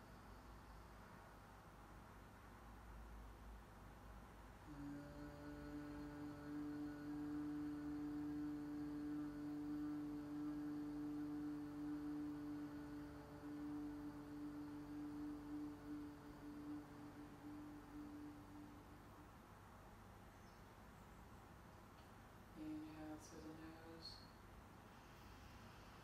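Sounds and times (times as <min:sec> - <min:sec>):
woman humming: 0:04.6 - 0:19.3.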